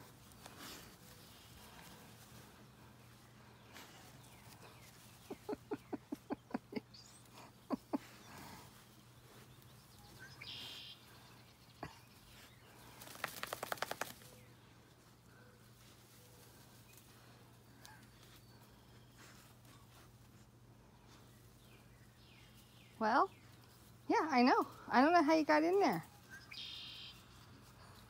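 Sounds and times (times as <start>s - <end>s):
wire fence clicking and rattling: 13.0s - 14.3s.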